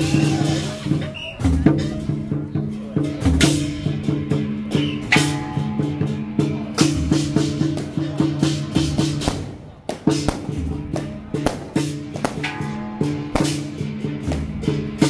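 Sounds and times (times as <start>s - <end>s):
drum and hand cymbals: 0.0s - 15.0s
loud cymbal crashes: 3.0s - 15.0s
pitched melody: 10.3s - 15.0s.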